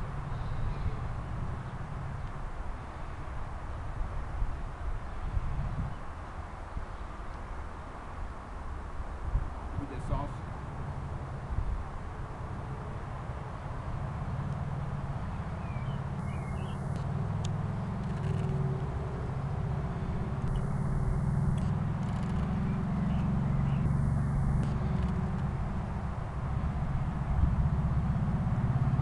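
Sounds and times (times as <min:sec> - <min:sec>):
small motorbike engine running: 0:16.2 - 0:29.0.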